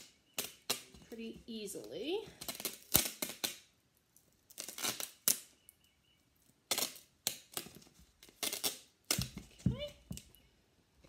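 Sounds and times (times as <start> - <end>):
duct tape ripping off roll: 0.0 - 1.0, 2.3 - 3.8, 4.4 - 5.6, 6.6 - 9.6.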